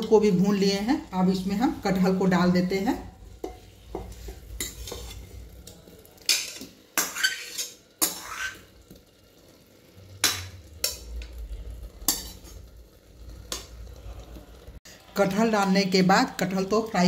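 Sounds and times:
faint sizzle: 0:00.0 - 0:17.0
metal spoon scraping steel plate: 0:03.4 - 0:05.5, 0:06.3 - 0:08.7, 0:10.2 - 0:12.7.

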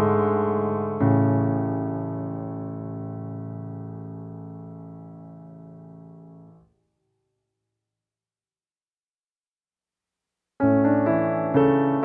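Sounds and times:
piano music: 0:00.0 - 0:06.6, 0:10.6 - 0:12.0.

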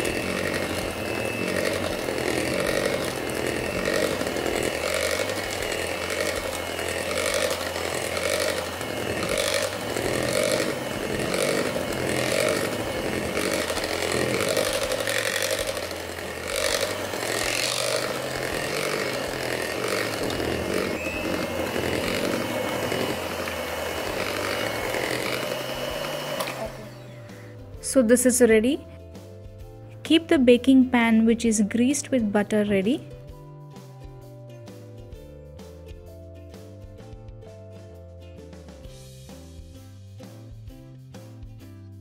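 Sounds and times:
electric hand mixer whirring: 0:00.0 - 0:27.8.

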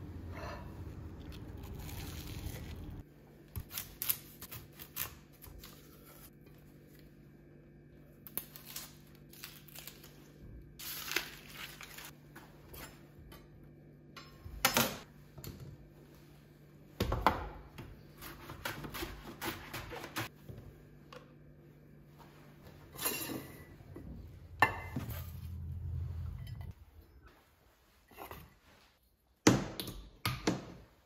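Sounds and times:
onion skin crackling and tearing: 0:01.2 - 0:03.0, 0:08.2 - 0:12.1.

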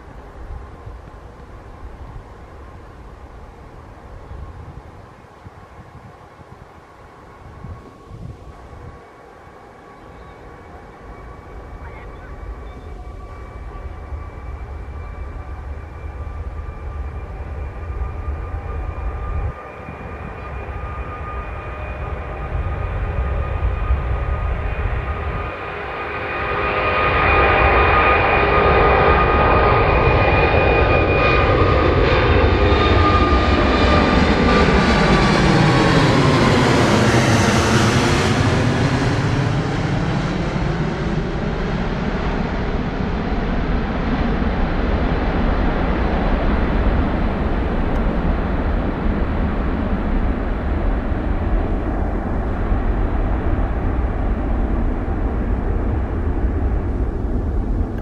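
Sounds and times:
jet airliner passing overhead: 0:00.0 - 0:58.0.

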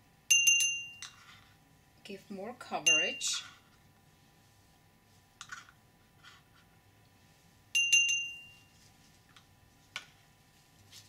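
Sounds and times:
clinks with ringing tone: 0:00.3 - 0:01.2, 0:07.8 - 0:08.7.

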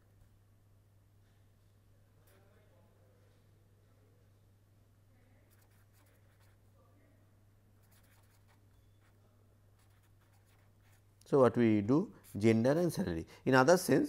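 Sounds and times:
low electrical hum: 0:00.0 - 0:14.0
pen scratching on paper: 0:05.5 - 0:06.6, 0:07.8 - 0:09.2, 0:09.8 - 0:11.0.

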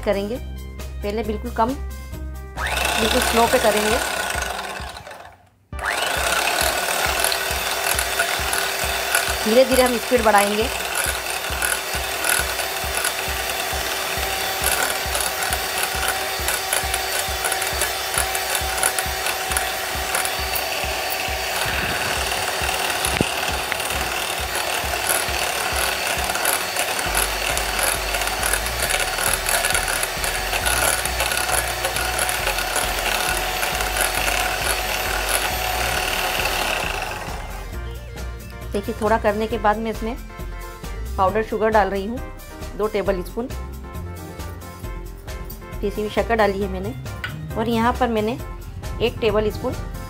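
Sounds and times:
electric hand mixer whipping cream: 0:02.6 - 0:38.0.

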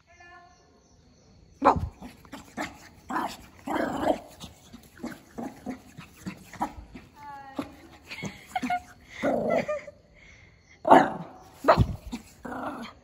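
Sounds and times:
small dog barking: 0:01.6 - 0:09.6, 0:10.9 - 0:12.9
dog growling: 0:01.6 - 0:09.9, 0:10.9 - 0:13.0.

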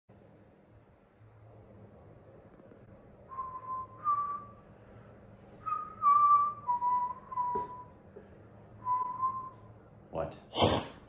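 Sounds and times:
person whistling a tune: 0:03.3 - 0:04.6, 0:05.6 - 0:07.9, 0:08.8 - 0:09.7.

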